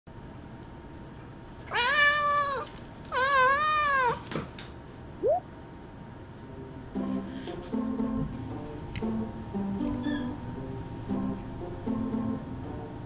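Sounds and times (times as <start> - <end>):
cat chirping: 1.7 - 4.2, 10.0 - 10.4
cat meowing: 1.7 - 4.2.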